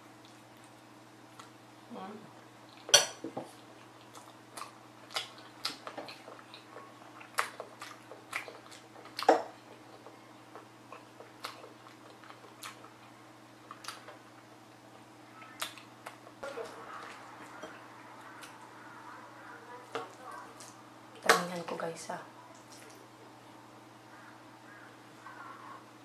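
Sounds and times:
faint steady hum: 0.0s - 26.0s
wet chewing smacks and clicks: 0.2s - 1.6s, 3.5s - 14.5s, 15.4s - 16.4s, 22.5s - 23.1s.

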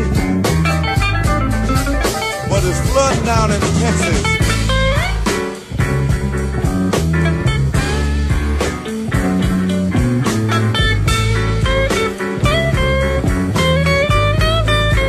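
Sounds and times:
bass: 0.0s - 15.0s
drums: 0.0s - 15.0s
lead guitar bending notes: 0.0s - 15.0s.

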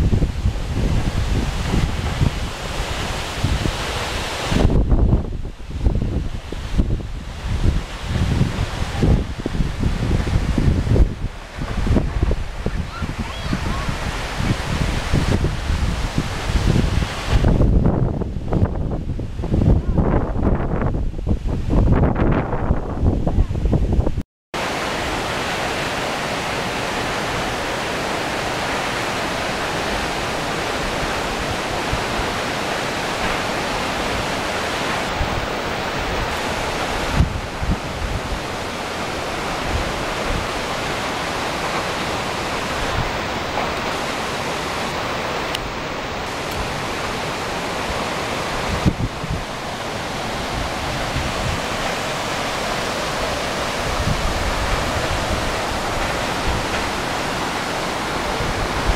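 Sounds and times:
waterfall rushing: 0.0s - 20.5s, 24.6s - 58.9s.

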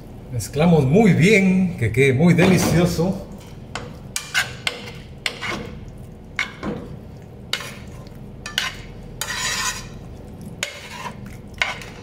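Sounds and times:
utensil stirring pasta in sauce: 3.3s - 12.0s
utensil scraping frying pan: 3.4s - 12.0s.

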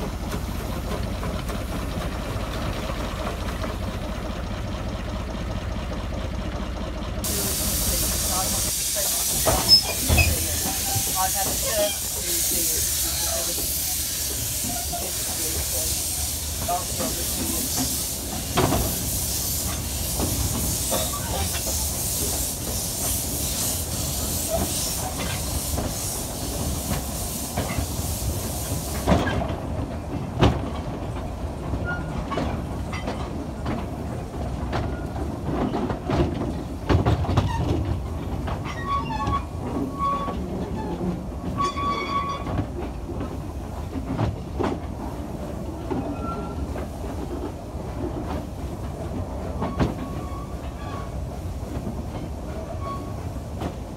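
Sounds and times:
train wheels clacking on rail joints: 0.0s - 53.9s
steam hissing: 7.2s - 29.5s
high wheel squeals: 9.5s - 12.2s, 41.6s - 42.6s, 52.8s - 53.2s.

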